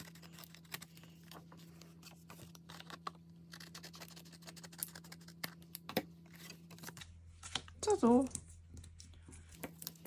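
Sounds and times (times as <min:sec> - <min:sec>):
scissors snipping paper: 0:00.0 - 0:01.4, 0:02.5 - 0:07.0
low steady hum: 0:00.0 - 0:10.0.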